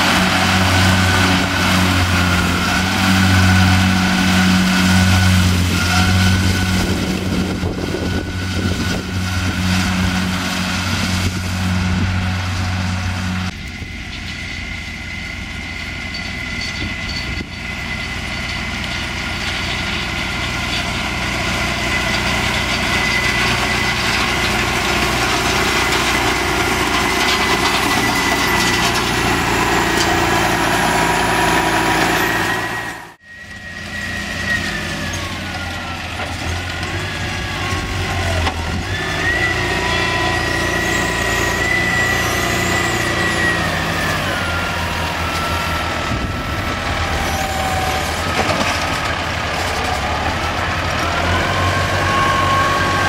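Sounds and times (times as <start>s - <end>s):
tractor diesel engine running: 0.0s - 53.0s
high whine: 22.8s - 36.0s.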